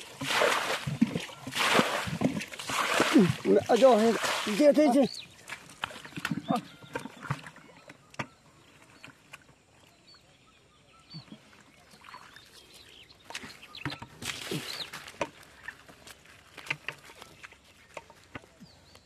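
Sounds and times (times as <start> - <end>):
shallow water splashing: 0.0 - 7.9.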